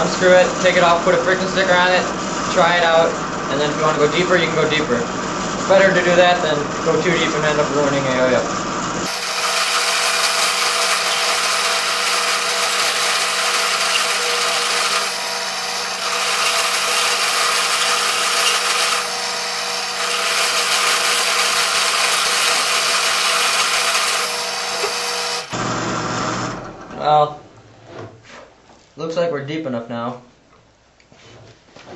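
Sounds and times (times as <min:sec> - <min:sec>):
drill press motor hum: 0:00.0 - 0:27.0
cutter scraping plastic: 0:09.1 - 0:19.2.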